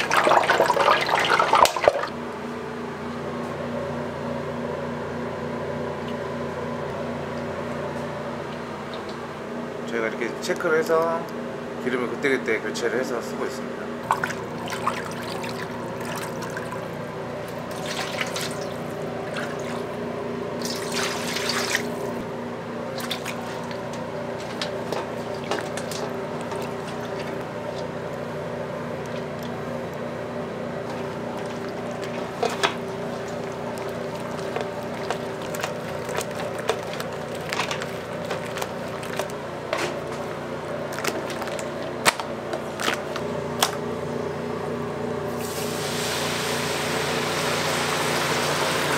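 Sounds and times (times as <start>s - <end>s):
kitchen equipment hum: 0.0s - 48.9s
chicken sloshing in batter: 14.0s - 20.0s, 20.6s - 22.2s, 22.9s - 28.0s, 30.8s - 42.0s.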